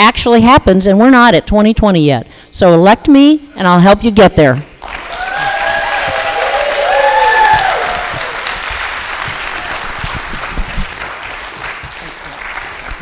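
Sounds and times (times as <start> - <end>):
audience applauding: 4.8 - 13.0.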